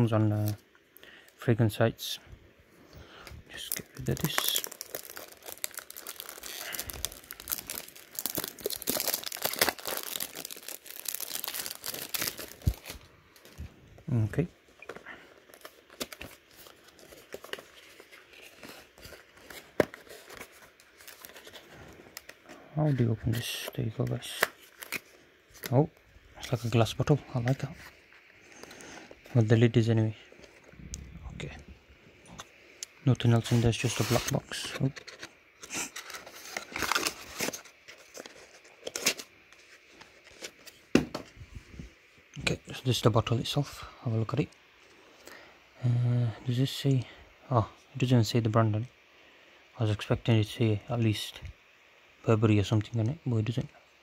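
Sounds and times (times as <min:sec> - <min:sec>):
cardboard packaging rustling: 0:03.6 - 0:13.8, 0:14.8 - 0:23.7, 0:33.3 - 0:40.9.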